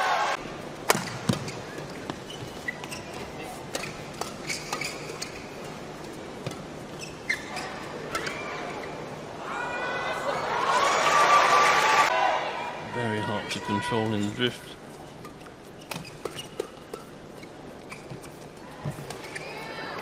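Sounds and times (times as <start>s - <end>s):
shoes squeaking on court floor: 0.9s - 9.1s, 14.1s - 20.0s.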